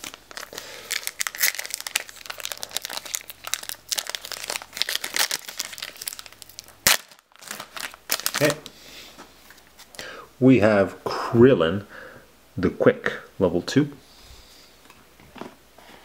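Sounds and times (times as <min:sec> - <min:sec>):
foil wrapper crinkling: 0:00.0 - 0:08.7.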